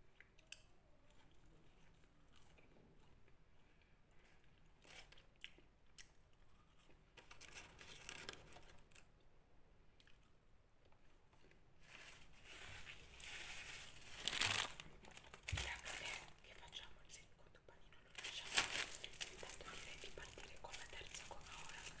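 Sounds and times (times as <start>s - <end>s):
person chewing: 0.0s - 7.1s
paper wrapper crinkling: 7.2s - 9.1s, 11.8s - 16.7s, 18.1s - 22.0s.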